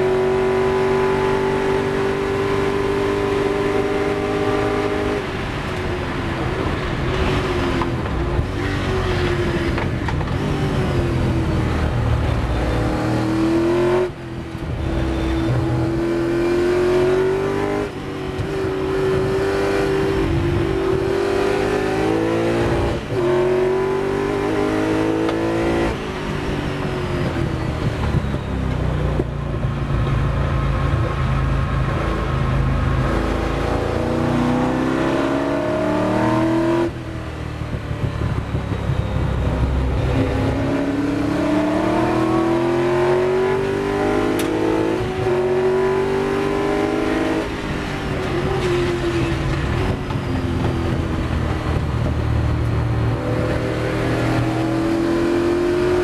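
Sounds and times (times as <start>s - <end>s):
racing car engine revving: 7.2s - 26.0s, 32.9s - 37.0s, 39.4s - 56.0s.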